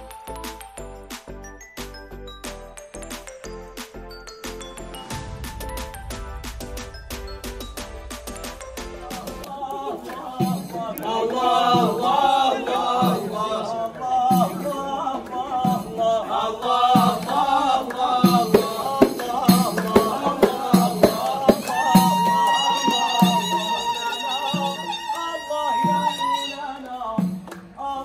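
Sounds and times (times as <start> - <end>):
held instrumental note: 4.4 - 13.4
frame drums beaten: 4.4 - 25.1
men chanting together: 9.2 - 25.0.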